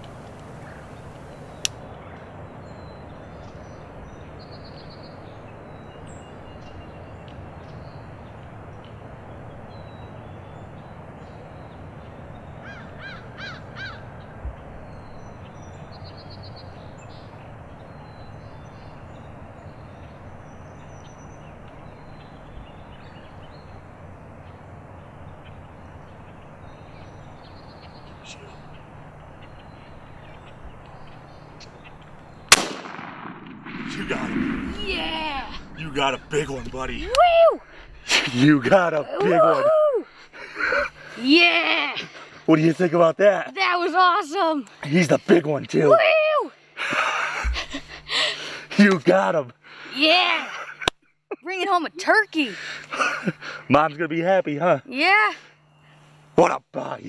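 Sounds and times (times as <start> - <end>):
small birds chirping: 0.0 - 32.8, 33.7 - 57.0
outdoor background noise: 0.0 - 57.0
crow cawing: 12.6 - 14.1.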